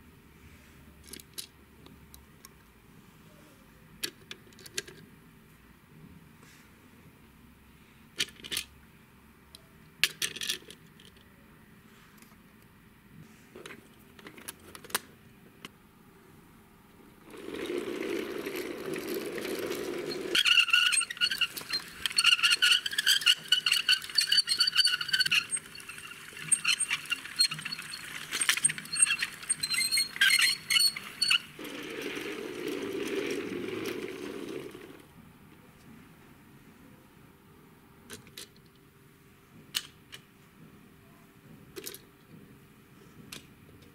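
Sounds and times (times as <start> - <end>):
plastic wheels rolling rumble: 17.2 - 35.1
high squealing tones: 19.6 - 34.8.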